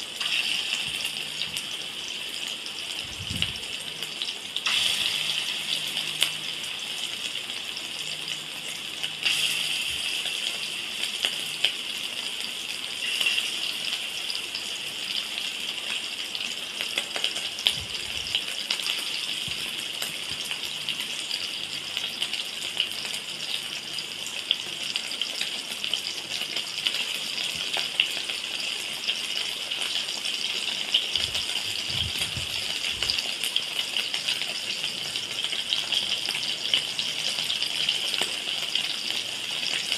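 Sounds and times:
meatballs sizzling in hot oil: 0.0 - 39.9
oil popping and crackling: 24.4 - 39.9.

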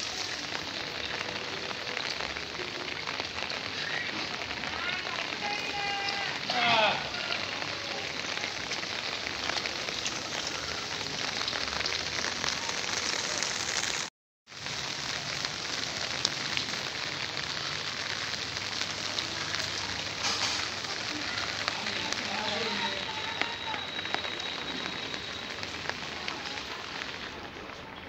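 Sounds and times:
steady rain hissing: 0.0 - 28.0
raindrop ticks: 14.6 - 28.0.

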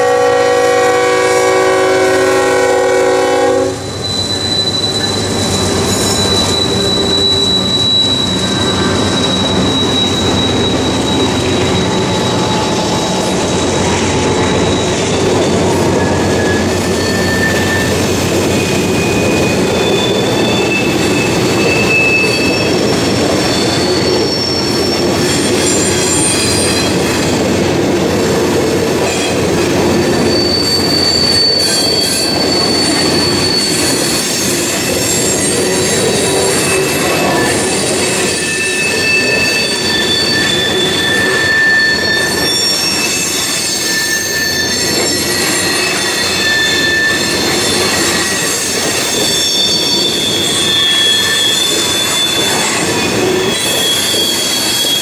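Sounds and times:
locomotive air horn: 0.0 - 4.0
train wheels rumbling on rail: 0.0 - 55.0
wheel squeals: 3.8 - 55.0.

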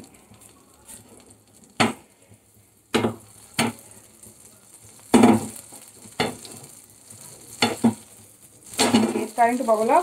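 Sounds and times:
butter sizzling: 0.0 - 10.0
spatula scraping frying pan: 4.9 - 10.0.

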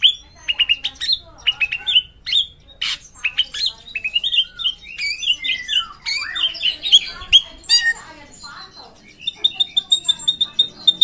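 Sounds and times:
drongo singing whistles and chirps: 4.4 - 8.0.

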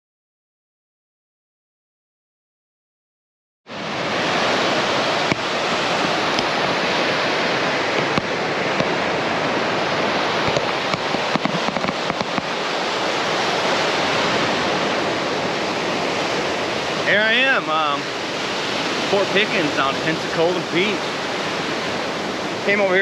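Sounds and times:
waves breaking on beach: 3.7 - 23.0
sharp clicks and crackles: 10.4 - 12.5.

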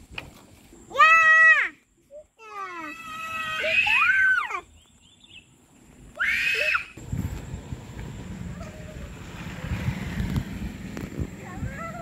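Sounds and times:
child squealing: 2.7 - 4.6, 6.2 - 7.0
low outdoor rumble: 6.9 - 12.0.

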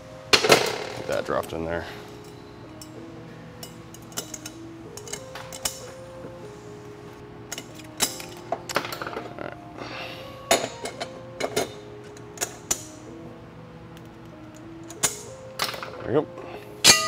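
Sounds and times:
background music: 0.0 - 17.0
metal parts clinking and knocking: 3.6 - 6.0, 7.5 - 9.4, 10.5 - 12.9, 14.5 - 16.1.

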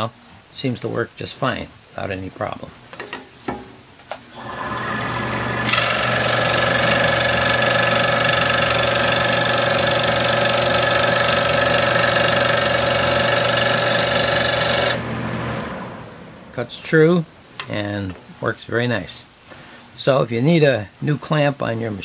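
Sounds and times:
scroll saw cutting wood: 4.3 - 15.8.

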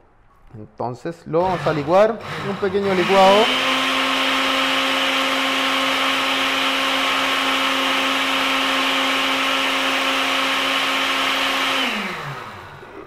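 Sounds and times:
blender running: 1.4 - 13.0.

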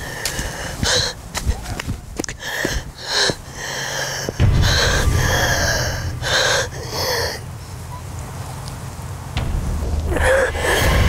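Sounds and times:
low rumble: 4.4 - 11.0
woman gasping and sobbing: 10.1 - 11.0.

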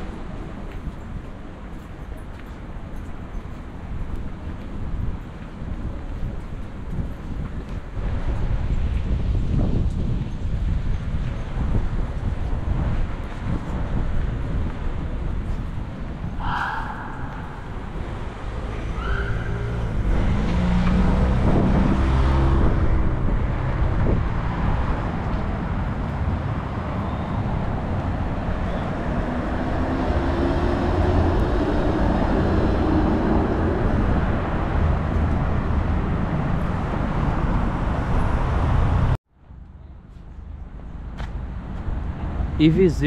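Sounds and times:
rumble of passing cars: 0.0 - 43.0
vehicle pulling away: 18.1 - 39.2.

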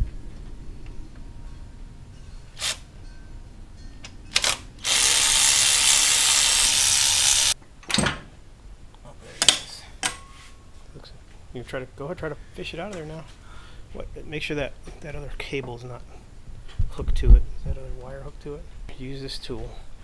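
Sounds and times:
cordless ratchet running: 4.4 - 7.6.

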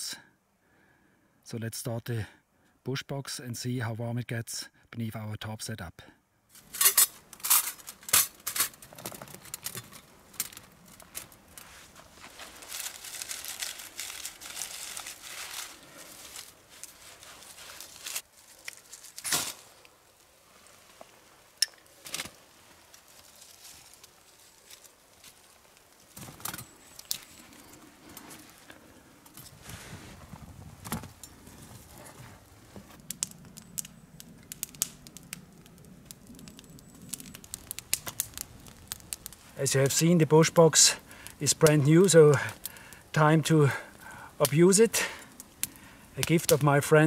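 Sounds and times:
fire rushing and crackling: 6.5 - 47.0
bark being torn and crumpled: 6.6 - 19.9, 34.5 - 39.6.

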